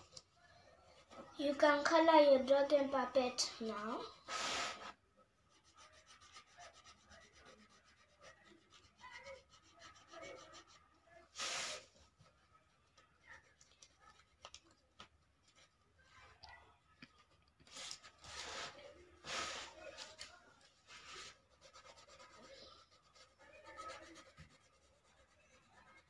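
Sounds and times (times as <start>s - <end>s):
pencil rubbing on paper: 4.2s - 12.0s, 17.7s - 26.0s
paper rustle: 17.6s - 22.6s.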